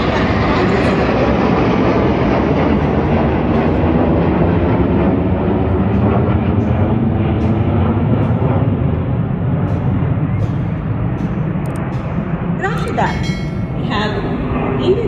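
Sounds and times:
jets flying past: 0.0s - 15.0s.

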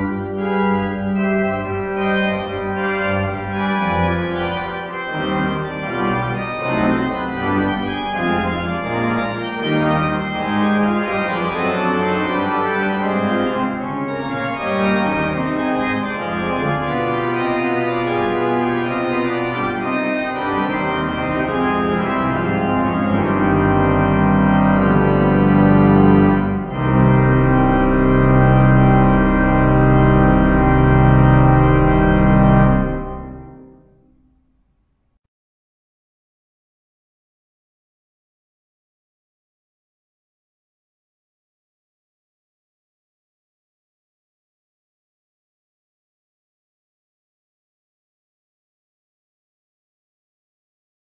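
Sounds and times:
church pipe organ playing: 0.0s - 34.0s
deep organ pedal bass: 0.0s - 34.0s.

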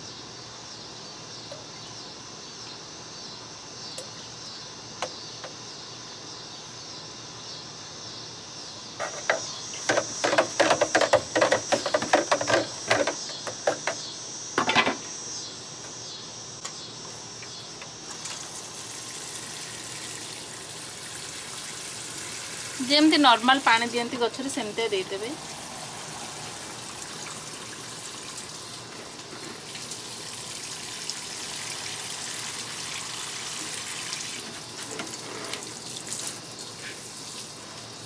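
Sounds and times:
insects chirring: 0.0s - 38.0s
water sprinkling from watering can: 18.1s - 38.0s.

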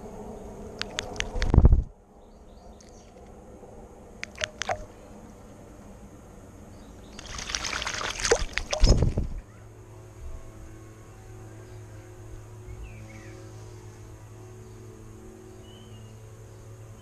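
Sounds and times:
low steady hum: 0.0s - 17.0s
bird splashing in water: 4.2s - 4.9s, 7.1s - 9.2s.

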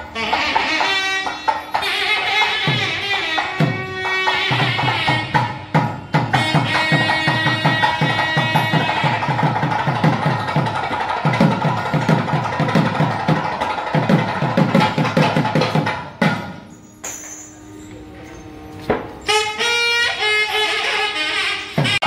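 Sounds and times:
fast drumming: 4.5s - 16.5s
wavering melody instrument: 16.3s - 21.2s.

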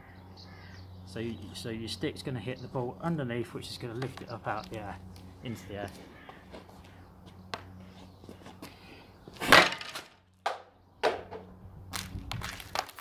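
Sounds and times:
stick striking ball crack: 4.0s - 4.8s, 7.5s - 7.8s, 9.4s - 13.0s.

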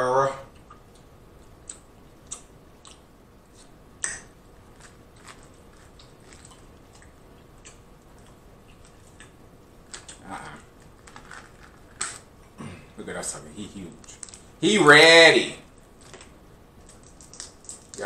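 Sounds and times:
chewing: 0.5s - 3.7s, 4.7s - 12.2s
shells cracking and crunching: 4.0s - 12.3s, 14.0s - 14.5s, 16.0s - 18.0s.

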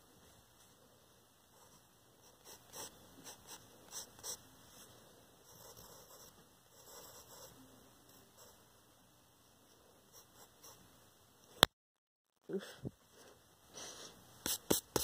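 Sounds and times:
pencil scratching on paper: 1.6s - 4.4s, 5.5s - 7.6s, 14.5s - 15.0s.

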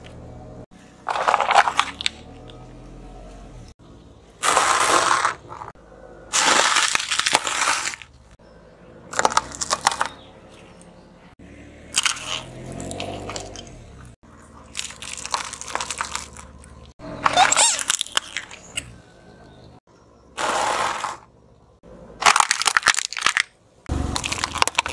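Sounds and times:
car tyre crushing objects: 1.0s - 2.6s, 4.4s - 8.3s, 9.1s - 10.7s, 11.9s - 19.0s, 20.4s - 21.3s, 22.2s - 24.9s.

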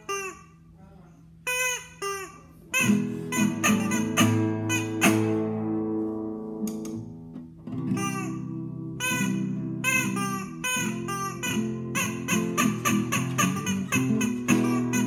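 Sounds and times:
rubber chicken squeaking: 0.0s - 0.8s, 1.4s - 5.5s, 7.9s - 15.0s
acoustic guitar strumming: 2.7s - 15.0s.

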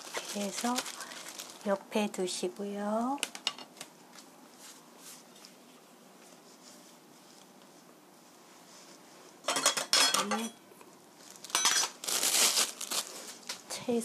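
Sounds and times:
dishes clattering on table: 9.5s - 10.6s.

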